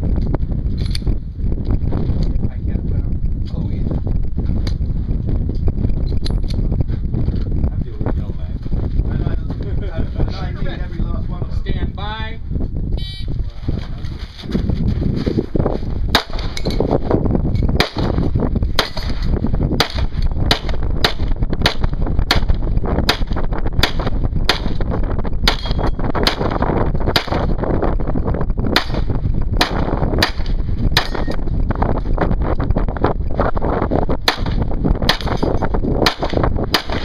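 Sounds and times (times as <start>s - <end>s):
pistol shots: 34.3s - 35.4s, 36.0s - 37.0s.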